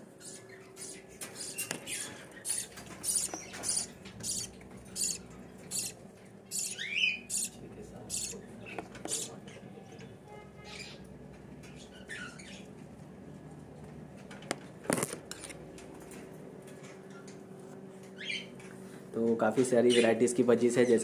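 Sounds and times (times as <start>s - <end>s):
faint steady hum: 0.0s - 21.0s
budgerigars chirping: 0.2s - 9.4s, 10.7s - 11.0s.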